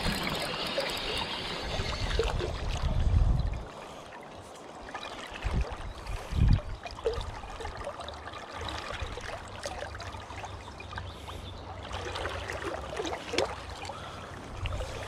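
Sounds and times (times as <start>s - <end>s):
fishing reel clicks and rustles: 0.0s - 2.5s
river water flowing: 0.0s - 15.0s.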